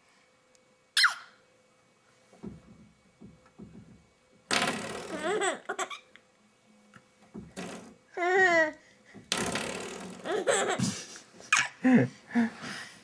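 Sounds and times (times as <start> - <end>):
soft low knocks: 2.3 - 4.1.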